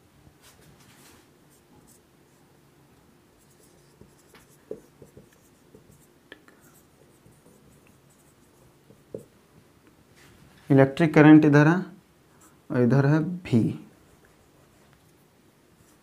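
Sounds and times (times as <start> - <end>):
marker writing on whiteboard: 3.4 - 9.3
marker tip tapping board: 4.0 - 6.0, 8.9 - 9.3.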